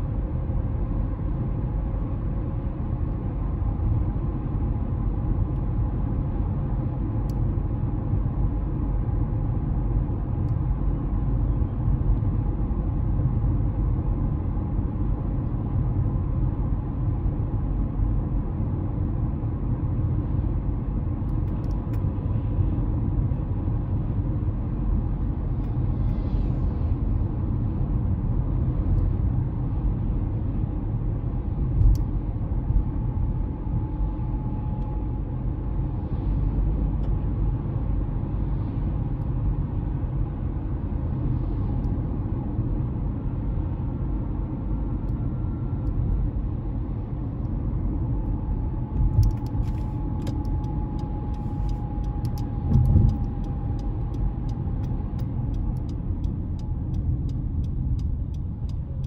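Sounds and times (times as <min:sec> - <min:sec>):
car road rumble: 0:00.0 - 0:59.0
light clicks: 0:49.0 - 0:58.8.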